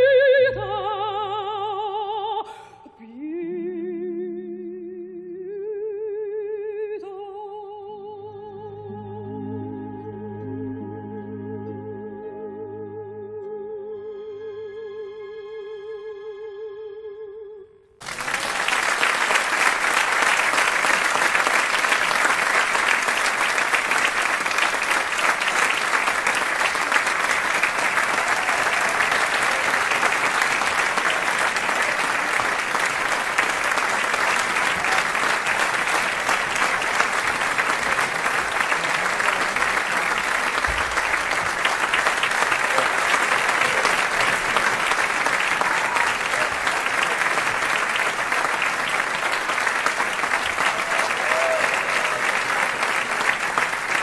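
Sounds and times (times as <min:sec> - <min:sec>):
crowd applause: 0:18.0 - 0:54.0.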